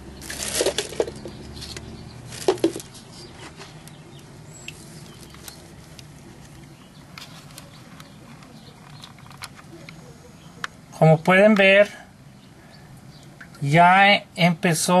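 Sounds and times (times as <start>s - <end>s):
plastic bag crinkling: 0.2s - 1.2s, 2.3s - 2.9s.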